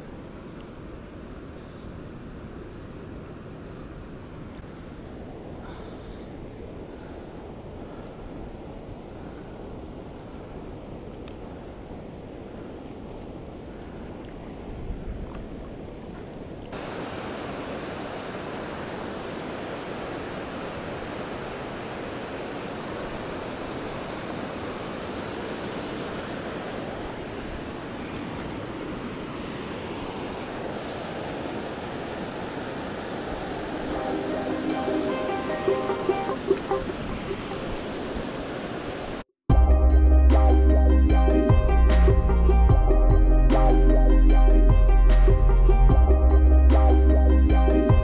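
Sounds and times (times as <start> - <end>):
river water rushing over rapids: 13.3 - 39.2.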